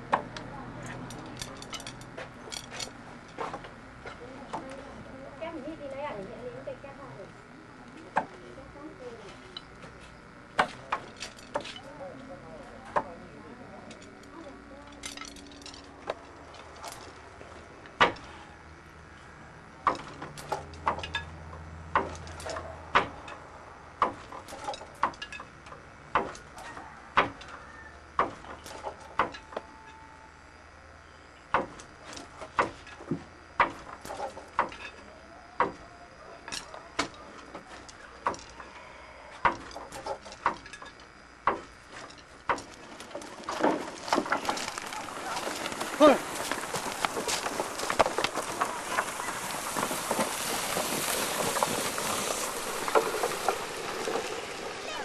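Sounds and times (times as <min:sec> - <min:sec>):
wooden handloom knocking: 0:26.1 - 0:27.5, 0:28.2 - 0:30.0, 0:32.4 - 0:35.0, 0:35.6 - 0:38.6, 0:39.4 - 0:55.0.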